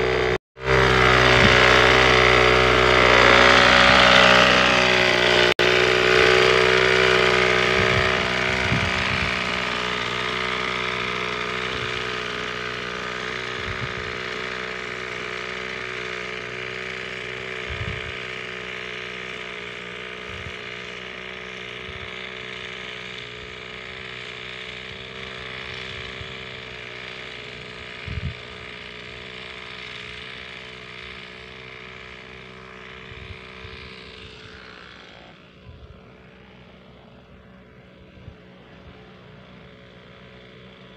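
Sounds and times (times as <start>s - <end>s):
small sprayer engine running: 0.0s - 40.9s.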